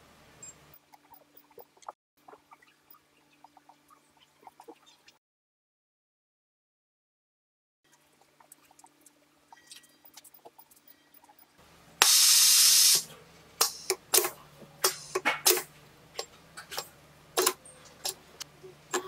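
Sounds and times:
loud hiss of air: 12.0s - 13.1s.

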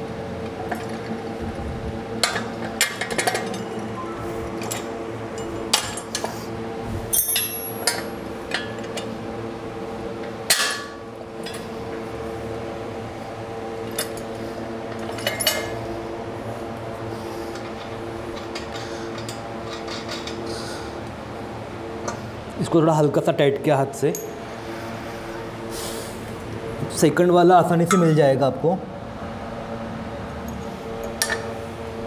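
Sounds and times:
metal clank with ring: 7.1s - 9.0s, 27.9s - 28.2s
steel bolts and plates clinking: 7.1s - 9.0s.

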